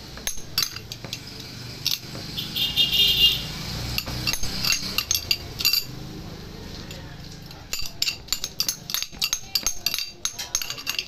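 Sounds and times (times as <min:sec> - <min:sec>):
cutlery clinking on metal plate: 0:00.2 - 0:02.1, 0:03.9 - 0:06.0, 0:06.8 - 0:11.0.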